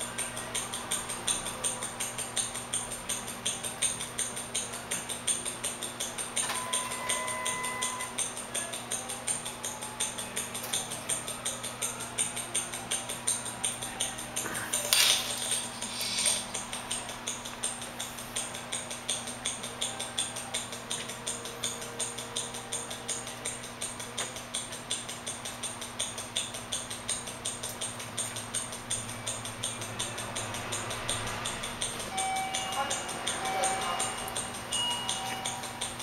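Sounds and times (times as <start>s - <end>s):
wristwatch ticking: 15.4s - 36.0s.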